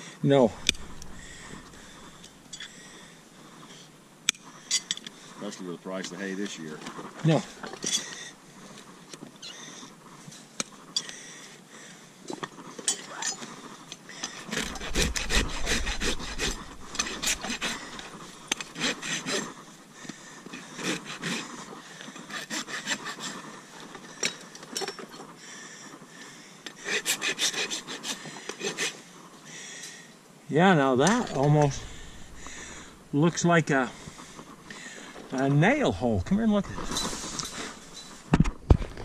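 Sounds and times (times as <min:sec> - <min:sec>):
rasp scraping hoof: 0:00.5 - 0:02.3, 0:14.3 - 0:19.7, 0:20.5 - 0:23.6, 0:31.1 - 0:39.0.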